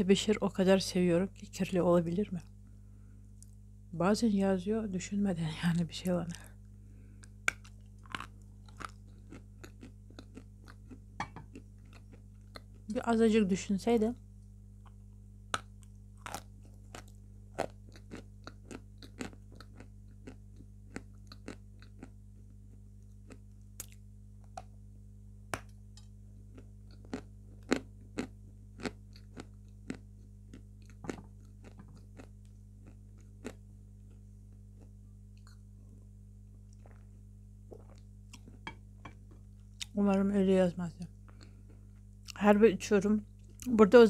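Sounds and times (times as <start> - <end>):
faint low hum: 0.0 - 44.0
chalk crunching and chewing: 7.2 - 12.9, 15.6 - 24.6, 26.5 - 35.6.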